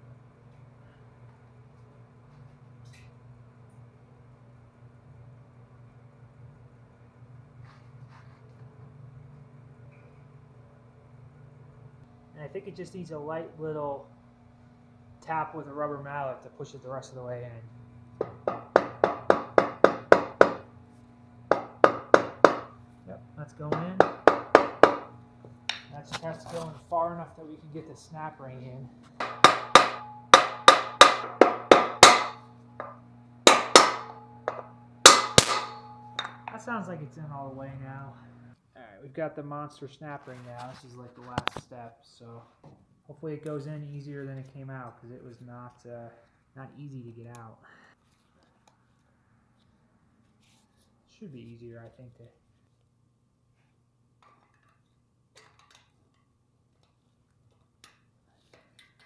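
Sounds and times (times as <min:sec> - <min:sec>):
low steady hum: 0:00.0 - 0:59.0
rubber mallet striking metal: 0:21.5 - 0:22.7, 0:23.8 - 0:25.1, 0:29.2 - 0:36.5
faint metal clicks and scrapes: 0:53.6 - 0:59.0.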